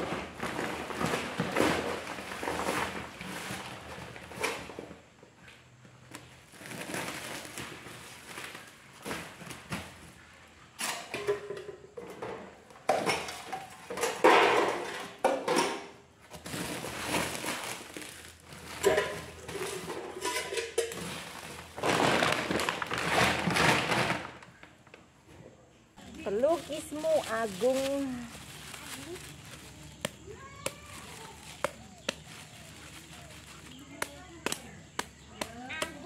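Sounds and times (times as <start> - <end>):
plastic bags rustling: 0.0 - 4.9, 6.0 - 10.3, 16.2 - 25.2, 26.0 - 35.3
packages and pots knocking: 10.8 - 24.6.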